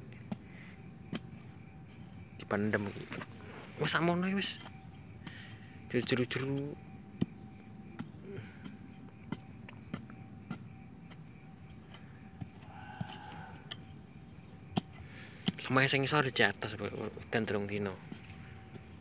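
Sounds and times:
night insects trilling: 0.0 - 19.0.

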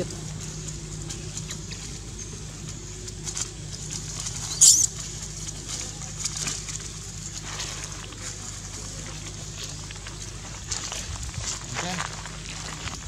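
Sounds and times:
rustling in dry leaves: 0.0 - 13.0
steady low hum: 0.0 - 13.0
baby monkey squealing: 4.4 - 4.9.

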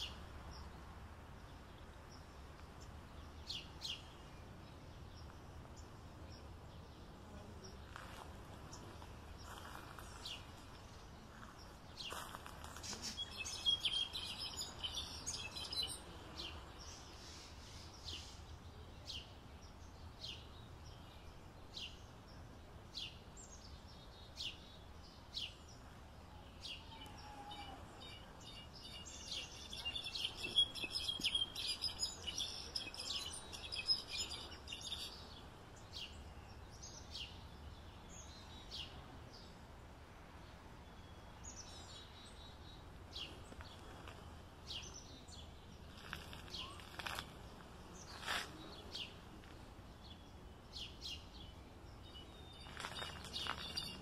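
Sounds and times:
low background hiss: 0.0 - 54.0
goldfinch chirping and twittering: 12.1 - 16.0, 28.0 - 35.3, 50.1 - 54.0.

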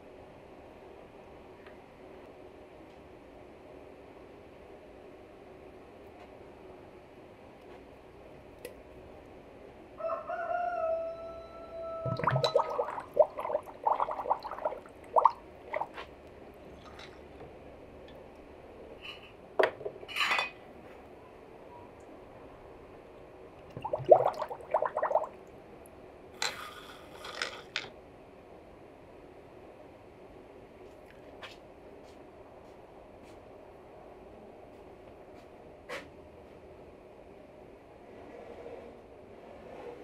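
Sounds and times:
rooster crowing: 10.0 - 12.2
bubbling and gurgling: 12.0 - 16.1, 23.6 - 25.5.

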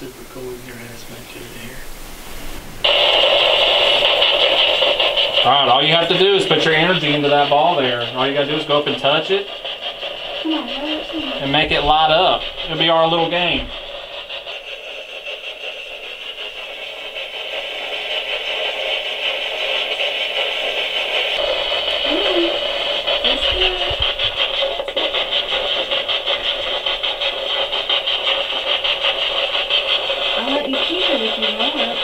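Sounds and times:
chopped radio static hiss: 0.0 - 32.0
voice-like fragments: 2.8 - 17.2, 20.6 - 29.2.

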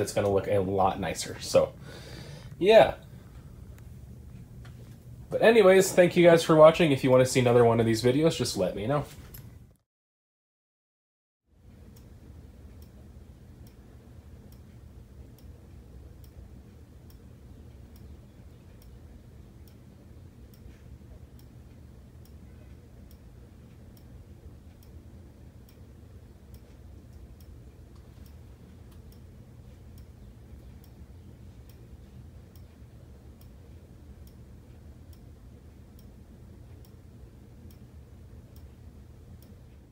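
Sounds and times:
steady low hum: 0.0 - 9.8, 11.5 - 39.9
faint regular ticks: 11.7 - 39.9.

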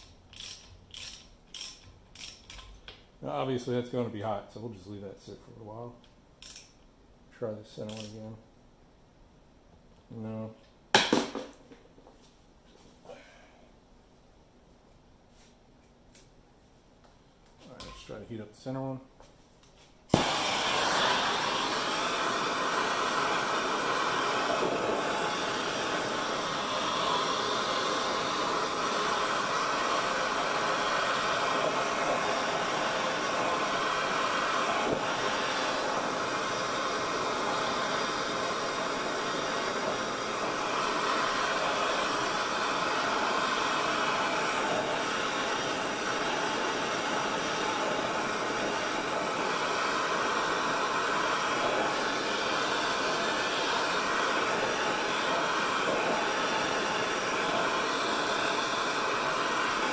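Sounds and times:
gas torch hissing: 0.0 - 4.3, 20.1 - 59.9.

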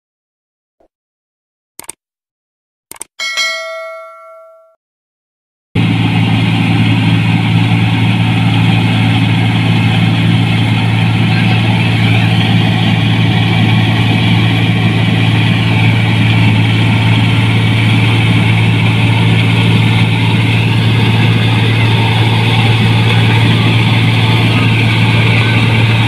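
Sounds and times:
combine harvester engine hum: 5.8 - 26.0
machinery working: 5.8 - 26.0.

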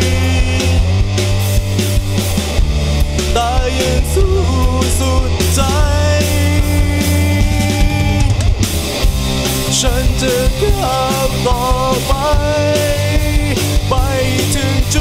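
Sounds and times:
lead electric guitar bending notes: 0.0 - 15.0
rock band music: 0.0 - 15.0.

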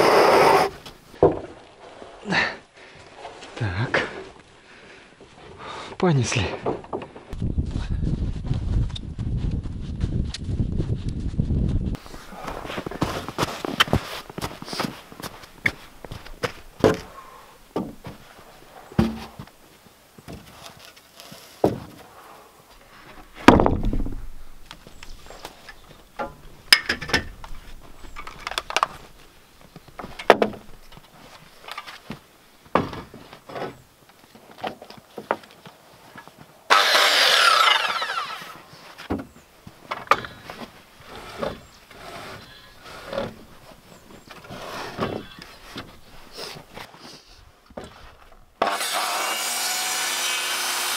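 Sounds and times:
wooden boards knocking: 19.0 - 19.5, 23.4 - 24.3
circular saw whining: 36.7 - 38.6, 48.6 - 50.9.

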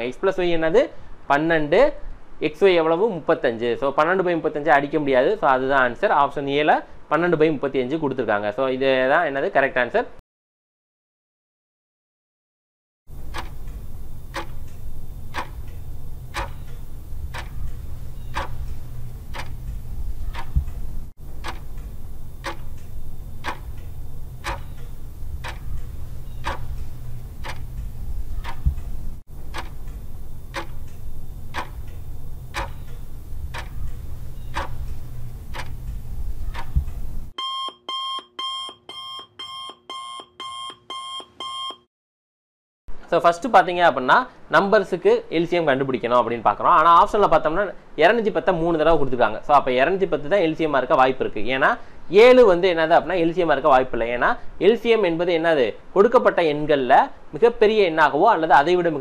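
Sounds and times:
clock ticking: 13.1 - 37.3
low hum: 13.1 - 37.3
alarm clock beeping: 13.3 - 20.7, 21.4 - 28.7, 29.5 - 35.8, 37.4 - 41.8.

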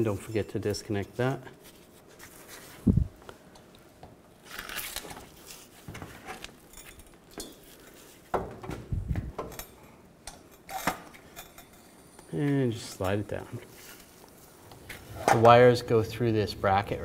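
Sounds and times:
metallic clinks and knocks: 6.6 - 7.8.

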